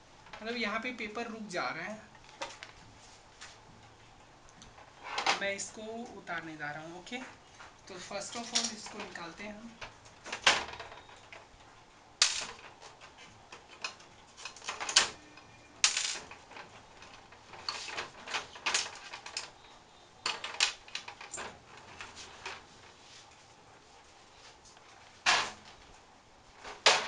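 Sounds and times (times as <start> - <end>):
plastic parts clicking and knocking: 8.3 - 11.5, 12.2 - 22.7, 26.6 - 27.0.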